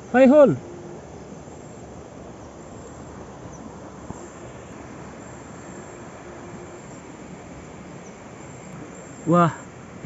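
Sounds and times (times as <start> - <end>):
outdoor background hiss: 0.0 - 10.0.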